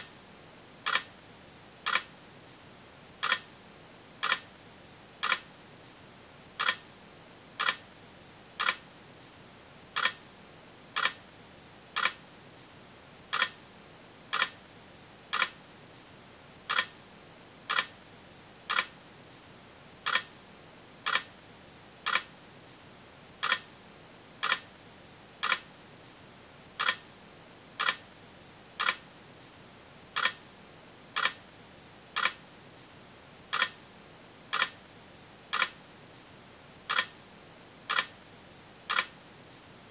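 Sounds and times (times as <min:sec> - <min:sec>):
faint steady hiss: 0:00.0 - 0:39.9
sharp clicks: 0:00.9 - 0:01.1, 0:01.9 - 0:02.1, 0:03.2 - 0:03.5, 0:05.2 - 0:05.5, 0:06.6 - 0:06.8, 0:07.6 - 0:07.8, 0:08.6 - 0:08.8, 0:10.0 - 0:10.2, 0:11.0 - 0:11.2, 0:12.0 - 0:12.2, 0:13.3 - 0:13.6, 0:14.3 - 0:14.6, 0:15.3 - 0:15.6, 0:16.7 - 0:16.9, 0:17.7 - 0:17.9, 0:18.7 - 0:18.9, 0:22.1 - 0:22.3, 0:23.4 - 0:23.6, 0:24.4 - 0:24.6, 0:25.4 - 0:25.6, 0:26.8 - 0:27.0, 0:27.8 - 0:28.0, 0:28.8 - 0:29.0, 0:30.2 - 0:30.4, 0:31.2 - 0:31.4, 0:32.2 - 0:32.4, 0:33.5 - 0:33.8, 0:34.5 - 0:34.8, 0:35.5 - 0:35.8, 0:36.9 - 0:37.1, 0:37.9 - 0:38.1, 0:38.9 - 0:39.1.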